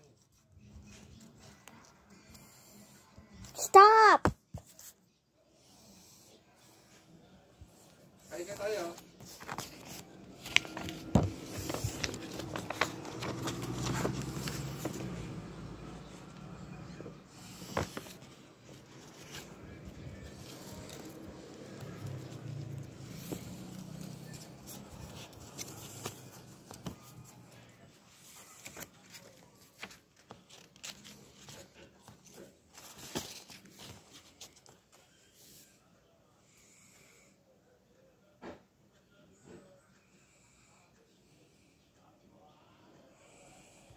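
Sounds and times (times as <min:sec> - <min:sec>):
paper rustling: 0:08.4 - 0:15.6, 0:17.3 - 0:35.1.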